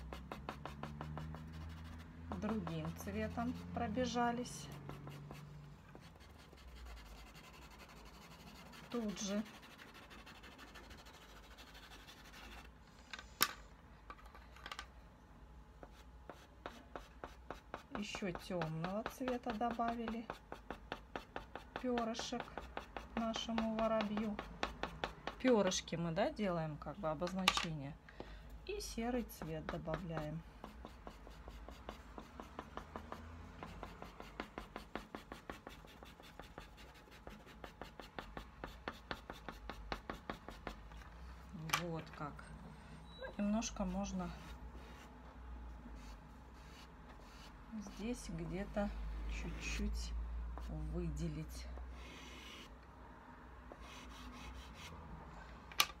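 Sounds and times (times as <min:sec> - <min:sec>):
pastel stick scratching on paper: 0:00.0 - 0:12.7, 0:15.8 - 0:25.6, 0:29.2 - 0:41.1, 0:43.6 - 0:45.1, 0:46.0 - 0:48.2, 0:52.0 - 0:52.7, 0:53.7 - 0:54.9.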